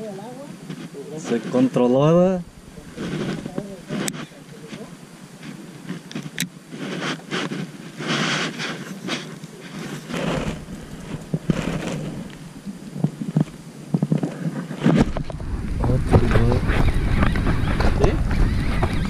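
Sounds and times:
wind buffeting microphone: 0:01.7 - 0:05.1, 0:10.0 - 0:19.0
deep rumble: 0:01.8 - 0:05.2, 0:10.0 - 0:13.7, 0:15.0 - 0:19.0.

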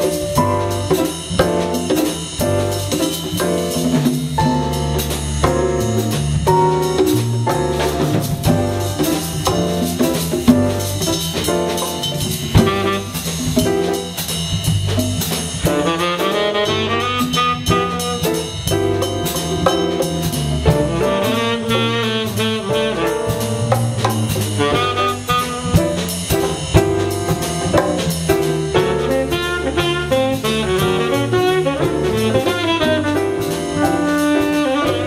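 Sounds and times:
drum kit swing beat on cymbals: 0:00.0 - 0:35.0
piano: 0:00.0 - 0:35.0
walking electric bass: 0:00.0 - 0:35.0
tenor saxophone improvising: 0:12.6 - 0:13.6, 0:15.6 - 0:18.3, 0:20.9 - 0:23.9, 0:24.5 - 0:26.4, 0:29.1 - 0:35.0.

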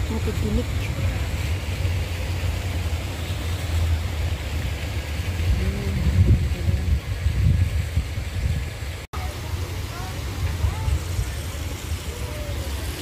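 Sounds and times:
wind buffeting microphone: 0:04.0 - 0:09.1.

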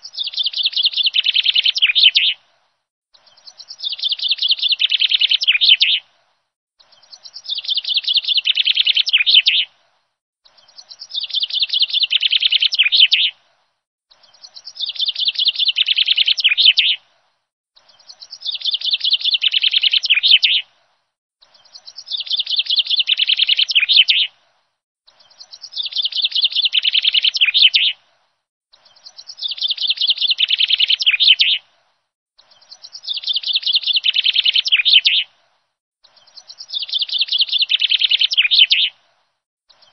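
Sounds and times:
bird chirping: 0:00.0 - 0:02.4, 0:03.1 - 0:06.1, 0:06.8 - 0:13.5, 0:14.1 - 0:17.1, 0:17.8 - 0:20.7, 0:21.4 - 0:24.4, 0:25.1 - 0:28.0, 0:28.7 - 0:31.8, 0:32.4 - 0:39.9.

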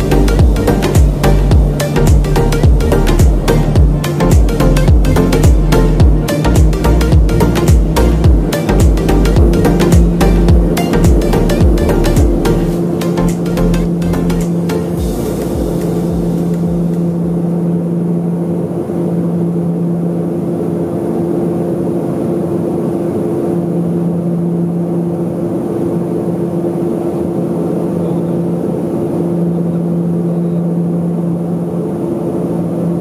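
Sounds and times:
airplane engine and propeller drone: 0:00.0 - 0:33.0
low pulsing hum: 0:00.0 - 0:33.0.

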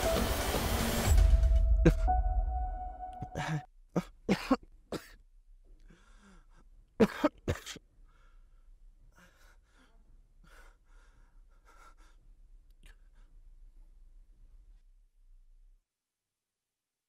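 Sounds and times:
man coughing: 0:03.2 - 0:05.2, 0:07.0 - 0:07.8
heavy breaths: 0:05.7 - 0:06.8, 0:08.0 - 0:13.5.

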